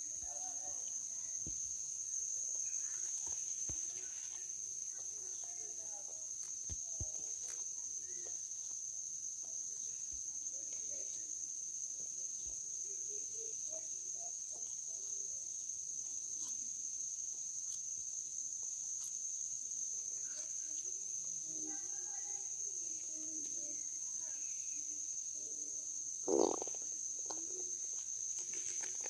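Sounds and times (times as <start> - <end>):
insect chorus shrilling: 0.0 - 29.0.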